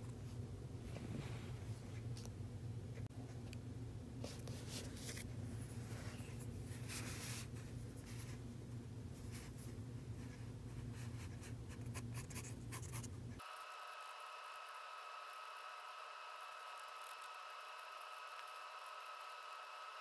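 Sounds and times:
steady low hum: 0:00.0 - 0:20.0
pencil scratching on paper: 0:11.0 - 0:13.7.

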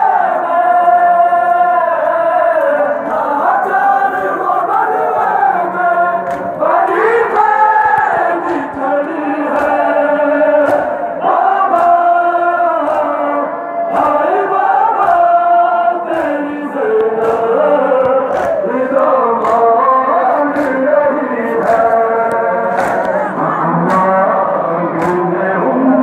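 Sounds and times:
crowd of men chanting: 0:00.0 - 0:26.0
chest-beating slaps: 0:07.8 - 0:09.9, 0:10.6 - 0:11.0, 0:11.7 - 0:12.1, 0:12.8 - 0:13.2, 0:15.0 - 0:15.4, 0:16.1 - 0:18.6, 0:19.4 - 0:19.8, 0:20.5 - 0:20.8, 0:21.6 - 0:24.2, 0:24.9 - 0:25.2.

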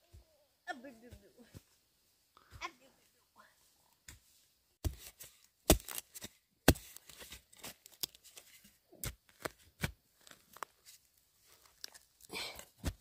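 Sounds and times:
sharp knocks and crunching crackles: 0:04.8 - 0:13.0.

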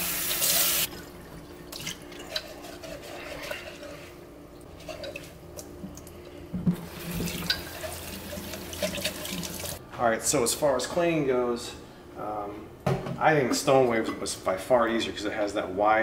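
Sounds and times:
sponge scrubbing a mug: 0:02.2 - 0:04.2.

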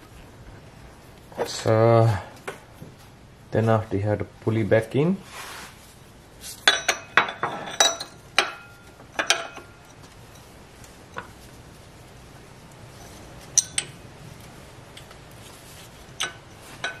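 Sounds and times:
metal tools clinking: 0:06.6 - 0:10.5, 0:13.5 - 0:14.0, 0:16.1 - 0:17.0.

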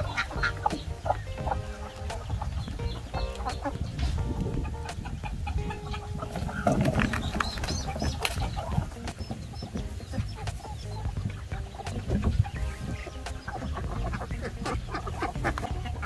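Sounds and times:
chickens and ducks clucking: 0:00.0 - 0:16.0.

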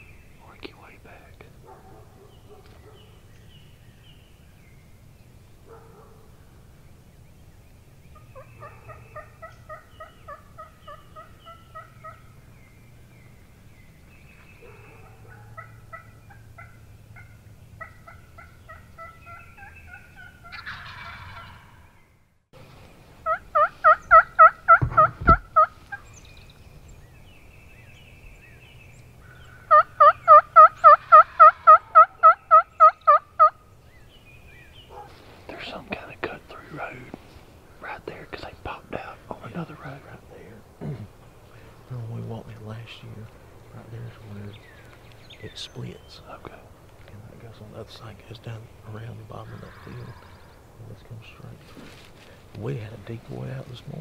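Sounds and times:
turkey yelping: 0:08.2 - 0:12.4, 0:14.6 - 0:21.9, 0:23.2 - 0:26.1, 0:29.3 - 0:33.6, 0:49.4 - 0:50.5
dull thump: 0:24.8 - 0:25.5.

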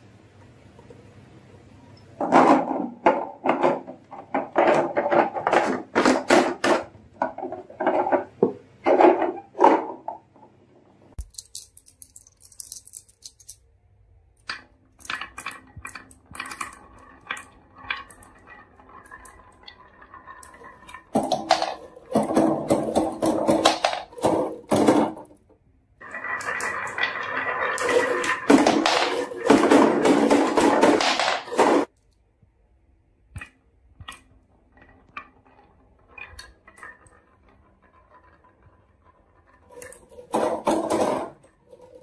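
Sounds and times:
marbles rolling down wooden track: 0:15.0 - 0:25.3, 0:26.0 - 0:31.9, 0:34.2 - 0:42.0.

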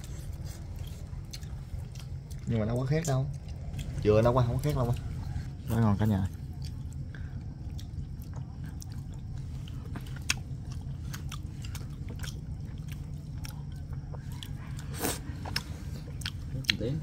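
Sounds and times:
chewing and biting: 0:00.0 - 0:17.0
low steady hum: 0:00.0 - 0:17.0.

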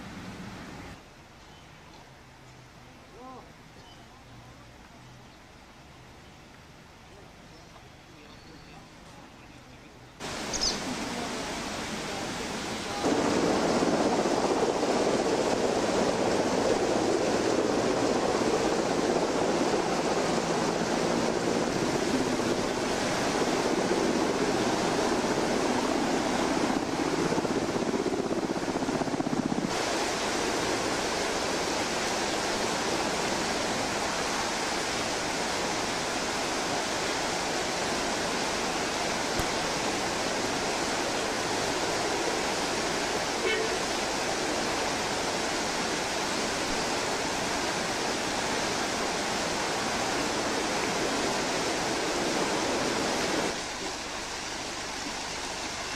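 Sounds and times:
river rushing over rocks: 0:10.2 - 0:55.9.

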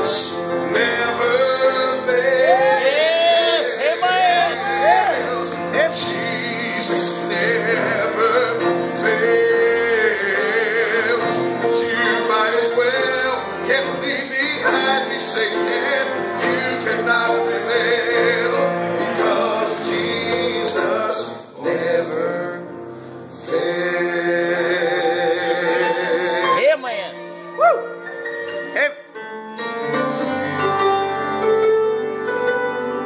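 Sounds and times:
man singing gospel: 0:00.0 - 0:22.7, 0:23.3 - 0:26.6
piano accompaniment: 0:00.0 - 0:33.0.

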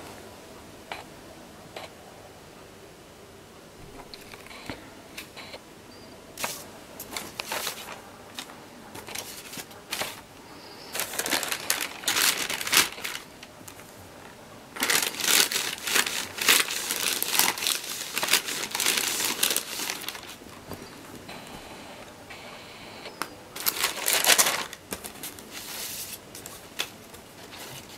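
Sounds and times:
thin sheet crinkling and rustling: 0:06.4 - 0:10.3, 0:10.9 - 0:21.2, 0:23.6 - 0:27.9.

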